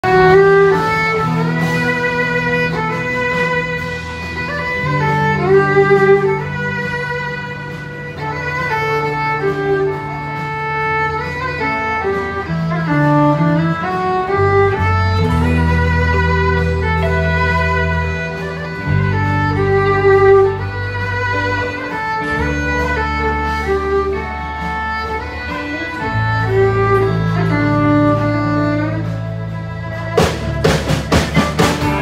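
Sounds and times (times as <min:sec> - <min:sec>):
acoustic guitar accompaniment: 0:00.0 - 0:32.0
fiddle playing slow melody: 0:00.0 - 0:32.0.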